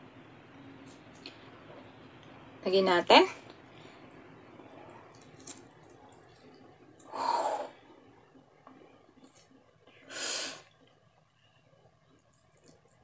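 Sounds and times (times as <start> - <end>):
faint eating clicks: 3.4 - 7.2, 11.8 - 13.0
loud breaths close to microphone: 7.1 - 7.9, 10.0 - 10.7.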